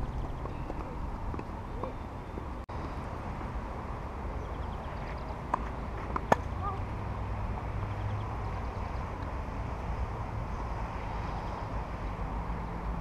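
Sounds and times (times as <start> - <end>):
racket striking ball: 5.5 - 6.5
tennis ball bouncing on clay: 5.5 - 6.6.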